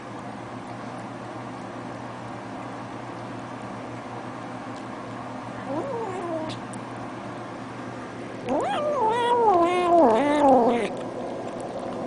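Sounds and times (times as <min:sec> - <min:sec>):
cat meowing: 0:05.7 - 0:06.6, 0:08.5 - 0:10.9.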